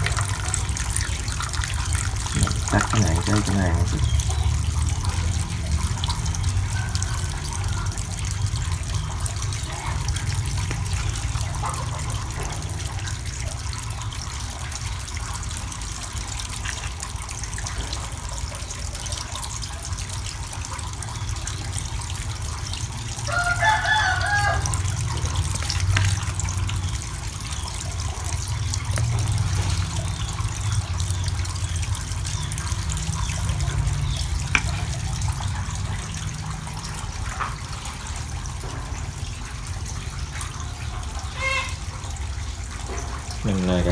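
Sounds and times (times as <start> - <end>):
water running from pipes: 0.0 - 43.9
rooster crowing: 23.2 - 25.0.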